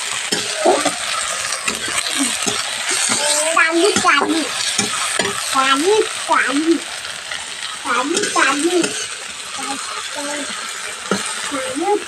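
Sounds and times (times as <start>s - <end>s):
onions sizzling in oil: 0.0s - 12.0s
spatula scraping a metal pan: 0.2s - 5.5s, 8.1s - 11.6s.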